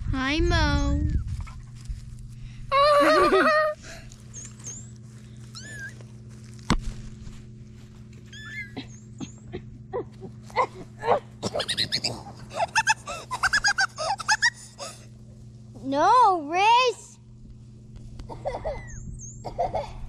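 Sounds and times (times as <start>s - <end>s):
kittens mewing: 5.5s - 6.1s, 10.5s - 14.3s.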